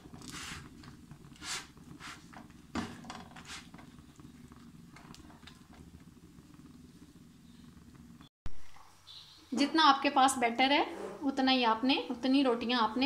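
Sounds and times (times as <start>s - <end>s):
spatula scraping pan: 0.0s - 4.0s
gas burner rumbling: 0.0s - 8.3s, 9.7s - 13.0s.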